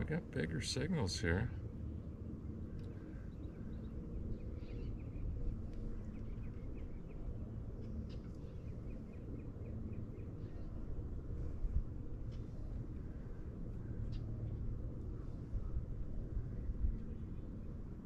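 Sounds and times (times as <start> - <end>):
steady low rumble: 0.0 - 18.0
small birds chirping: 2.6 - 7.3.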